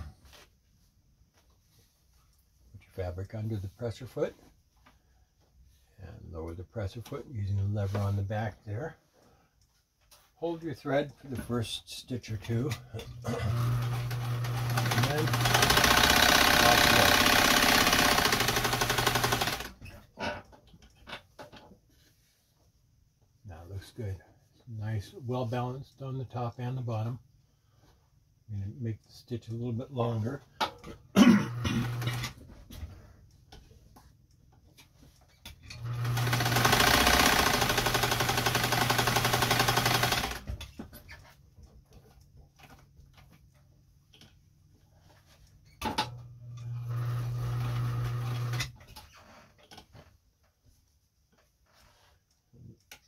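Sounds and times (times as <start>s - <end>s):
sewing machine stitching: 13.0s - 19.9s, 31.5s - 32.4s, 35.6s - 40.7s, 46.6s - 48.9s.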